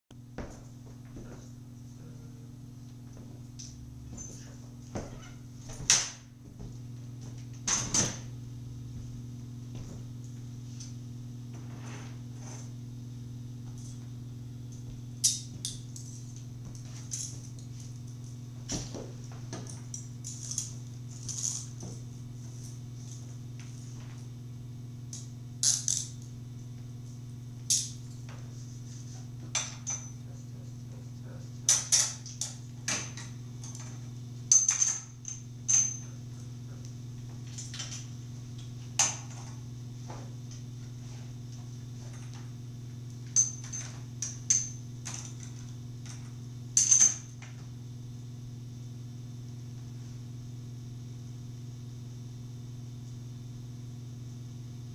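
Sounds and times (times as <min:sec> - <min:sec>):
steady low hum: 0:00.1 - 0:54.9
metal chain clinking: 0:19.6 - 0:21.8, 0:31.7 - 0:36.4, 0:43.4 - 0:46.2.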